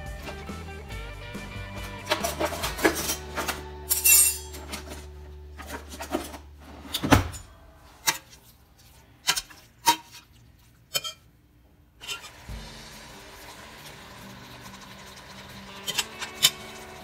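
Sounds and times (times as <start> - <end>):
guitar music: 0.0 - 6.0, 12.4 - 17.0
metal spoon scraping a steel pot: 2.0 - 6.4, 10.9 - 11.3, 12.0 - 12.4, 15.7 - 17.0
sharp clink: 3.9 - 4.6.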